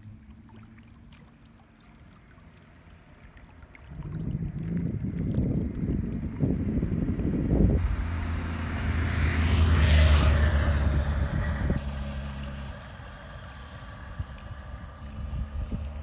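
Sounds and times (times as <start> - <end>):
wind buffeting microphone: 3.8 - 11.9, 12.6 - 16.0
vehicle driving past: 7.0 - 16.0.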